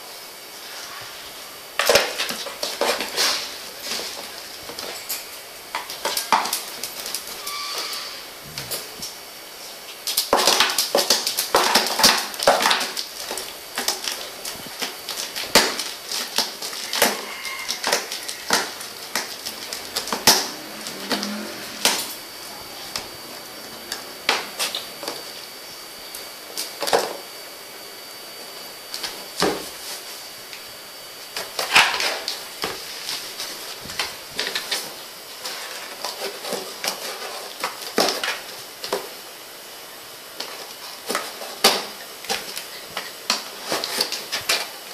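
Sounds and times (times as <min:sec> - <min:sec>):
claws scraping on tiles: 0:06.0 - 0:08.9, 0:12.0 - 0:23.1.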